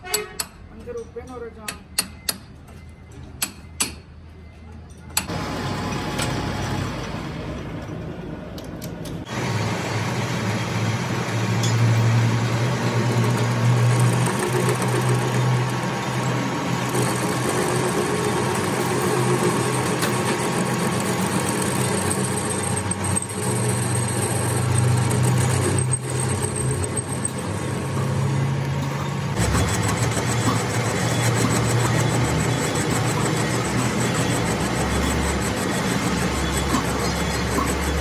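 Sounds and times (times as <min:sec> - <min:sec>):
machine motor humming: 0:12.4 - 0:38.0.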